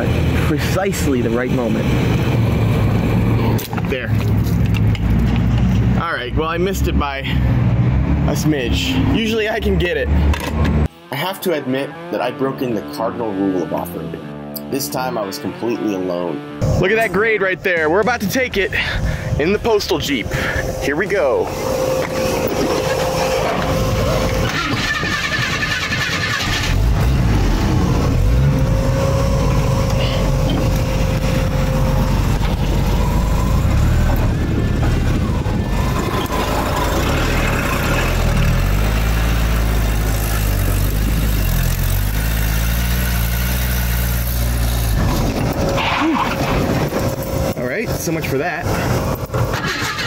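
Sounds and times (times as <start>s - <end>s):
thin steady whine: 19.4s - 24.5s
car engine running under load: 20.2s - 50.0s.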